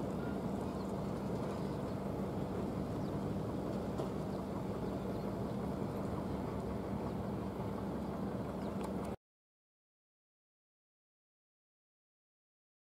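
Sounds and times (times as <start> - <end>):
faint constant hum: 0.0 - 9.2
low harbour rumble: 0.0 - 9.2.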